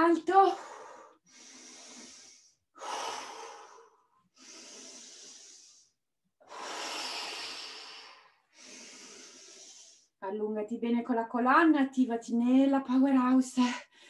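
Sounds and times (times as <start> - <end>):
woman breathing deeply: 0.6 - 10.2.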